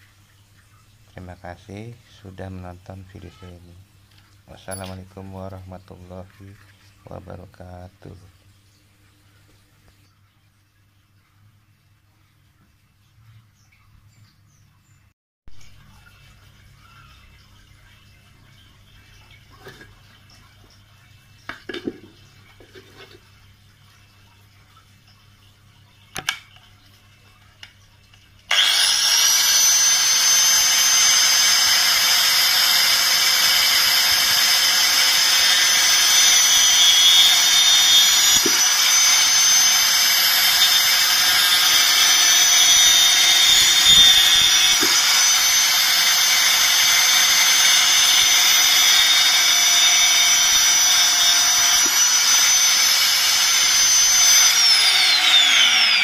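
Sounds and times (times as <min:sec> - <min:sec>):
angle grinder whining: 0:28.5 - 0:56.0.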